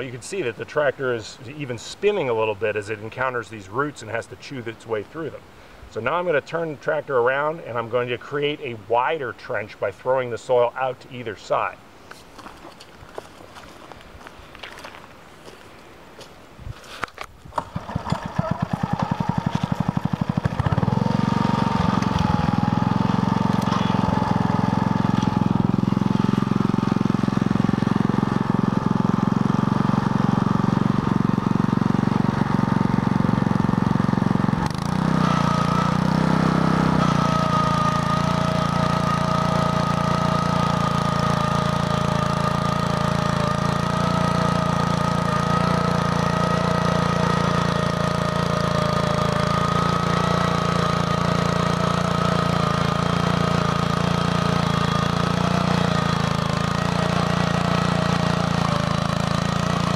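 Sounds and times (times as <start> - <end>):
tractor engine running: 17.5 - 59.9.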